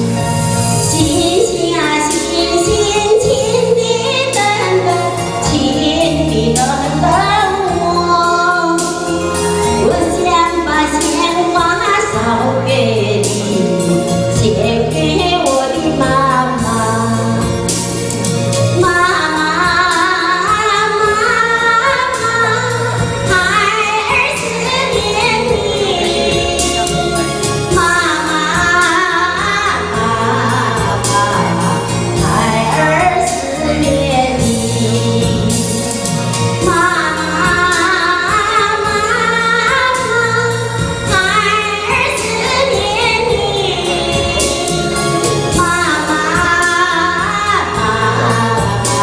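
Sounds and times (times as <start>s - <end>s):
instrumental accompaniment with beat: 0.0s - 49.0s
woman singing into microphone: 0.0s - 49.0s.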